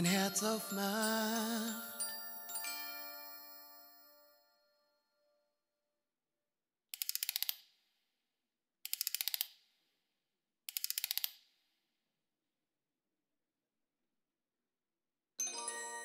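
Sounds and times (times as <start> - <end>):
wind-up key ratchet clicks: 7.0 - 7.6, 8.9 - 9.5, 10.7 - 11.4.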